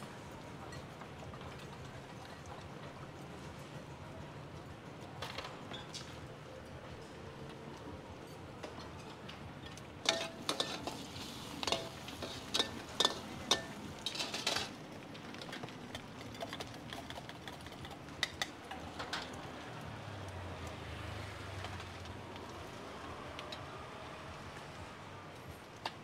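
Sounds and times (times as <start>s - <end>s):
metal utensils clinking on cookware: 8.6s - 19.4s.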